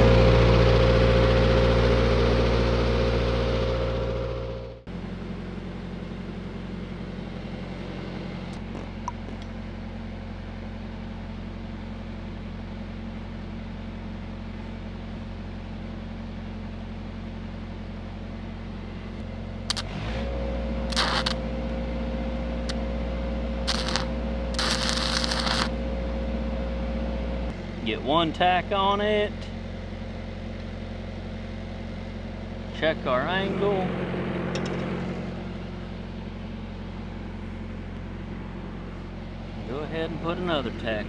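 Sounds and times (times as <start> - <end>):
welding machine engine running: 0.0 - 4.8, 19.1 - 28.0
welding arc crackling: 19.7 - 20.0, 20.9 - 21.6, 23.6 - 25.8.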